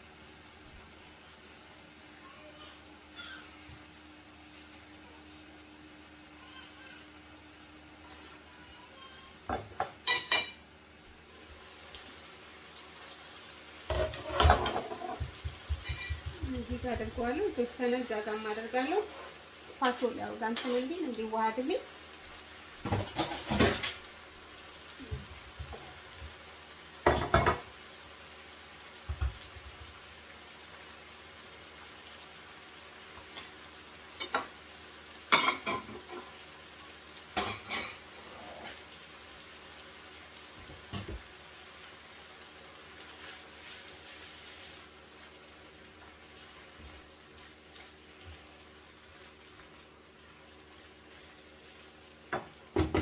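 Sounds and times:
sauce sizzling in frying pan: 0.0 - 53.0
stew simmering with hiss: 0.0 - 53.0
kitchen utensils clattering: 9.5 - 10.7, 13.9 - 16.3, 22.9 - 24.0, 35.3 - 36.3, 37.4 - 38.0
knocks on pan: 13.9 - 16.5, 27.0 - 27.7, 52.3 - 53.0.

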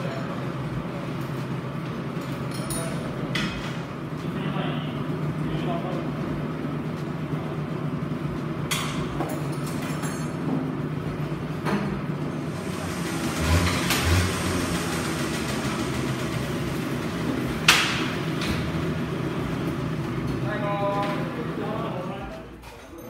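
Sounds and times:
steady hum: 10.6 - 22.4.

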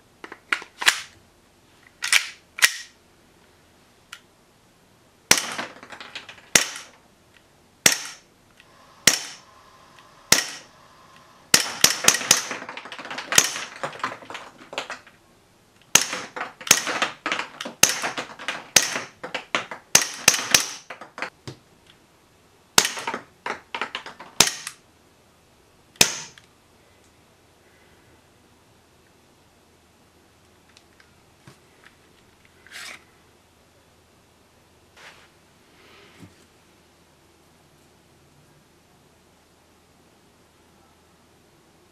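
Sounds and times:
airsoft pistol shots: 5.3 - 5.6, 6.5 - 6.9, 7.8 - 8.2, 9.0 - 9.5, 10.3 - 10.7, 11.5 - 12.6, 15.9 - 17.0, 19.9 - 20.9, 24.4 - 24.7, 26.0 - 26.4.

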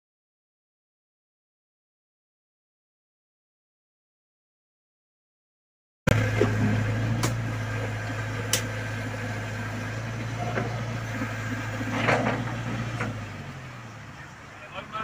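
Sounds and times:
diesel engine humming: 6.1 - 15.0.

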